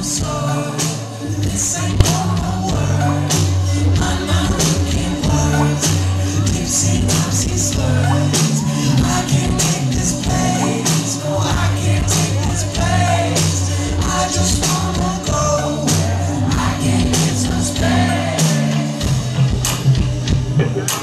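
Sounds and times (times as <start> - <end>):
man singing: 0.0 - 19.6
live rock band playing: 0.0 - 21.0.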